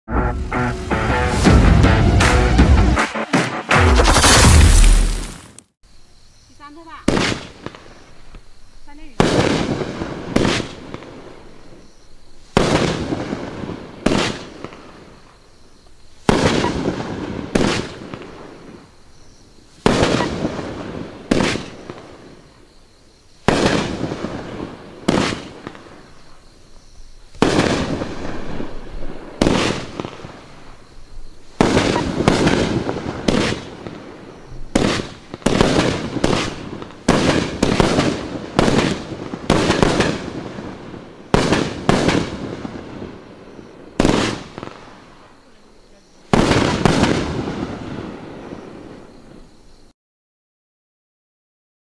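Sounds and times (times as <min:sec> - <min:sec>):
fireworks cake firing shots: 0:03.2 - 0:05.6, 0:07.0 - 0:07.8, 0:09.1 - 0:11.1, 0:12.5 - 0:14.8, 0:16.2 - 0:18.4, 0:19.8 - 0:22.2, 0:23.4 - 0:25.8, 0:27.3 - 0:30.4, 0:31.6 - 0:34.0, 0:34.7 - 0:43.0, 0:44.0 - 0:44.8, 0:46.3 - 0:47.8.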